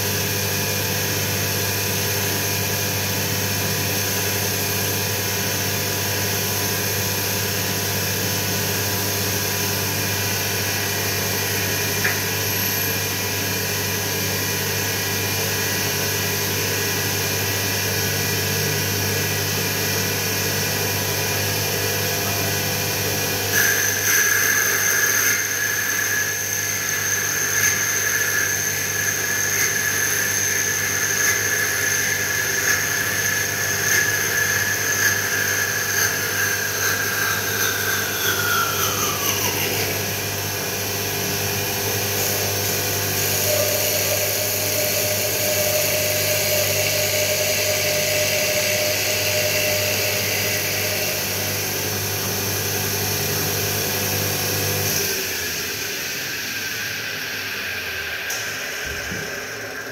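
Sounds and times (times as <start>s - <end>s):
lathe motor whining: 23.5s - 54.0s
cutter shaving wood: 23.6s - 53.2s.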